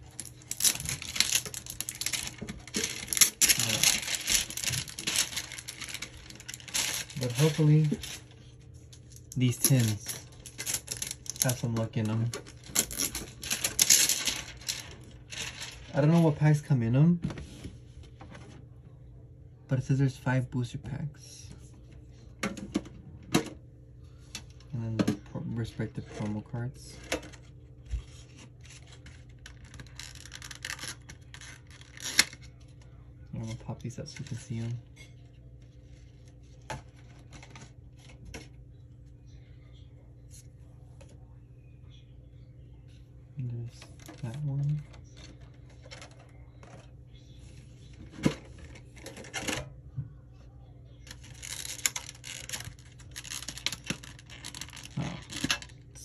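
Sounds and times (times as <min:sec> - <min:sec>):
plastic packaging crinkling: 0:00.0 - 0:16.4, 0:28.1 - 0:32.6, 0:51.0 - 0:56.0
hands scraping plastic packaging: 0:00.1 - 0:08.2.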